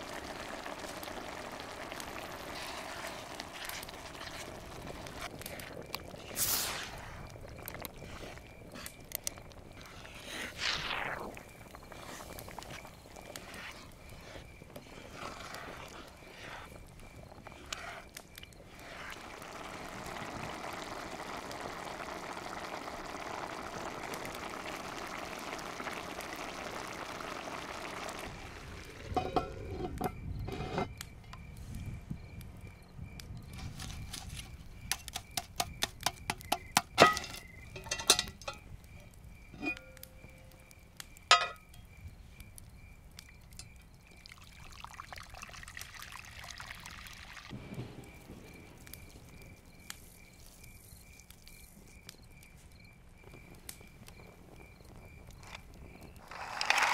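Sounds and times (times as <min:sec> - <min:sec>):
water pouring into a pot: 0:00.0 - 0:08.4, 0:18.8 - 0:29.7, 0:44.2 - 0:47.5
wood fire crackling and popping: 0:00.0 - 0:56.9
wooden spoon stirring: 0:02.3 - 0:06.4
sauce sizzling in a pot: 0:18.8 - 0:29.2.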